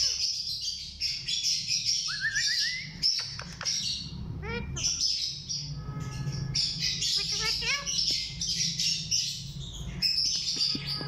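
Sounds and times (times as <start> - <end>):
parakeets chattering and chirping: 0.0 - 11.0
rising whistled bird notes: 2.0 - 3.0.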